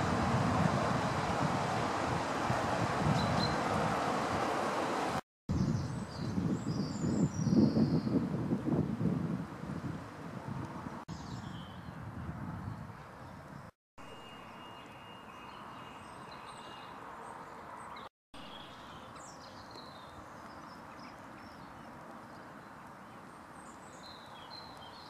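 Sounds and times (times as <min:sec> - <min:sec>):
wind buffeting microphone: 0:00.0 - 0:13.7
small birds chirping: 0:05.6 - 0:08.2, 0:12.7 - 0:25.0.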